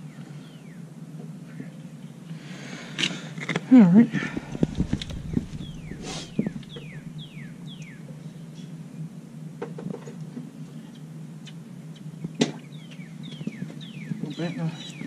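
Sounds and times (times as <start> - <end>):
low hum: 4.1 - 8.7
bird whistling: 4.6 - 8.1.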